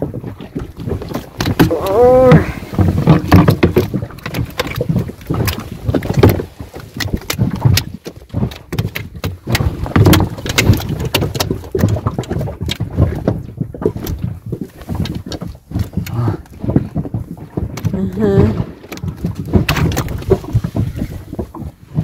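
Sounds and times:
clicks and knocks of fishing tackle: 0.4 - 1.9, 2.7 - 18.2, 18.8 - 21.8.

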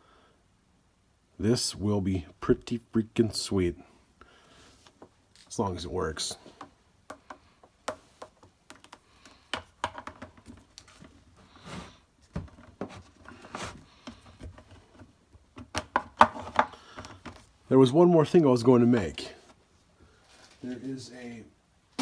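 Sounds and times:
hands handling objects clicking: 6.6 - 10.9.

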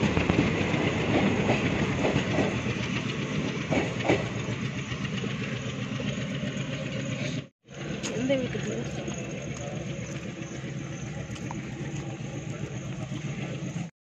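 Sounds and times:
train wheels knocking on rail joints: 0.0 - 6.9.

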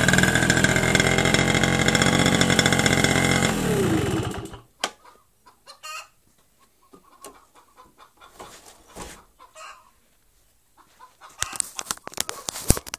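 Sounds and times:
faint chicken clucking: 4.8 - 12.6.

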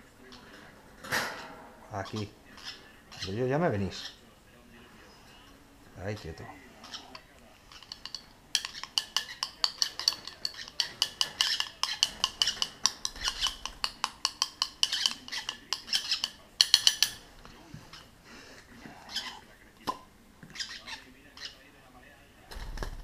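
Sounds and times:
spoon clinking against glass: 7.8 - 17.2.

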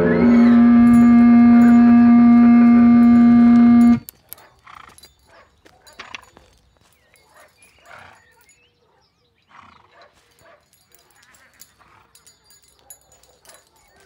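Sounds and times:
distorted electric guitar note: 0.0 - 4.0.

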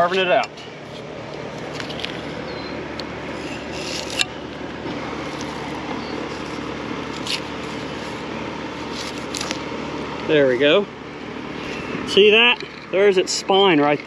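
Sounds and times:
steady mechanical hum: 0.0 - 14.0
knife slicing and scraping meat: 3.3 - 4.3, 6.2 - 9.5.

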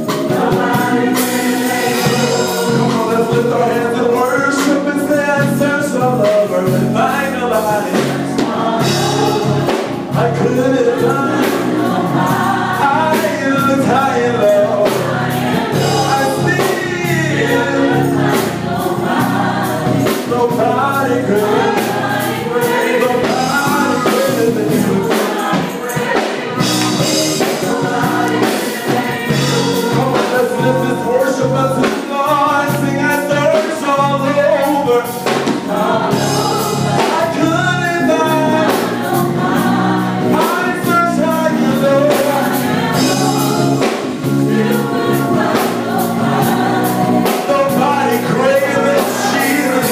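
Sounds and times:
gospel choir singing: 0.0 - 49.9
instrumental backing with steady beat: 0.0 - 49.9.

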